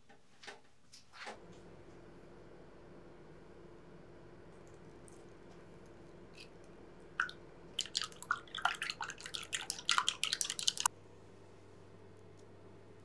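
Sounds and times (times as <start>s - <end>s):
egg cracking: 6.4s - 10.9s
chopsticks beating egg in glass bowl: 7.2s - 10.9s.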